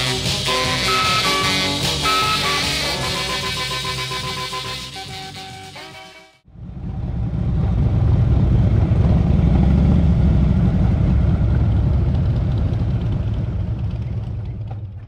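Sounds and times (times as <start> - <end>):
deep vehicle engine rumble: 6.4 - 15.0.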